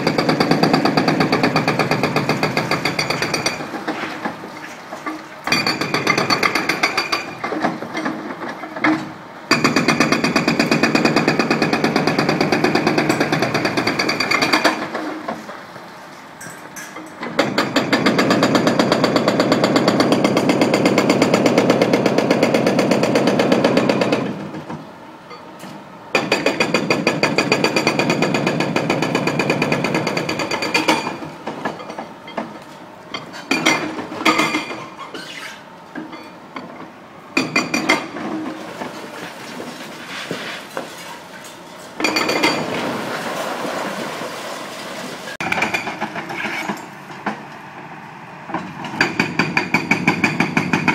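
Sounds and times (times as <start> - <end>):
demolition machine hammering concrete: 0.0 - 4.4, 5.5 - 8.2, 9.5 - 15.3, 17.2 - 24.8, 26.2 - 31.8, 37.4 - 38.2, 45.4 - 46.4, 48.9 - 50.9.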